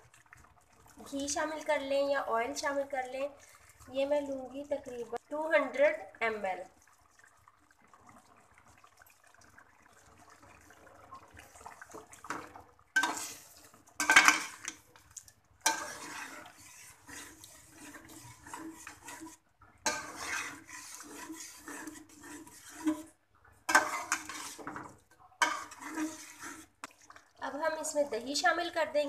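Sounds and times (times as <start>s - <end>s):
metal spoon scraping a pan: 13.0s - 14.9s, 15.6s - 27.0s.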